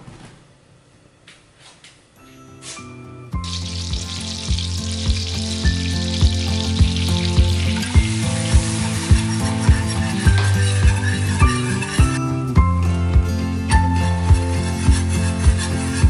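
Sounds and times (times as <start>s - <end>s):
background music with beat: 2.2s - 16.0s
butter sizzling in a pan: 3.4s - 12.2s
whisking in a pan: 3.4s - 12.3s, 14.0s - 16.0s.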